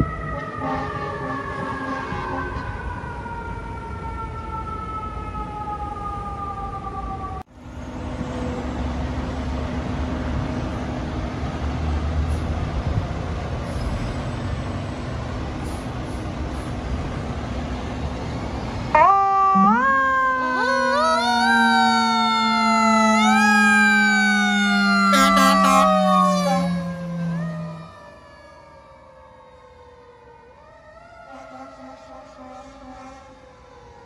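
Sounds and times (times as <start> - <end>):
siren falling in pitch: 0.0 - 7.4, 18.7 - 34.0
street traffic: 0.0 - 34.0
heavy truck engine rumble: 7.6 - 19.0.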